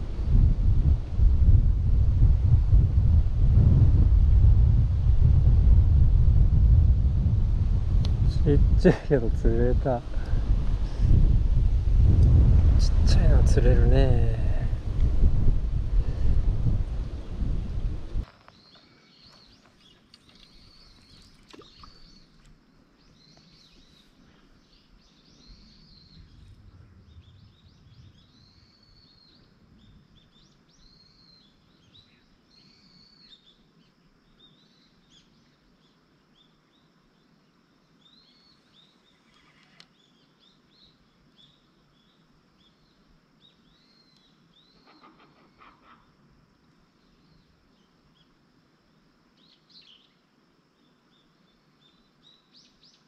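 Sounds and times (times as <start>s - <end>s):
faint bird chirps: 18.4s - 46.2s, 49.3s - 53.0s.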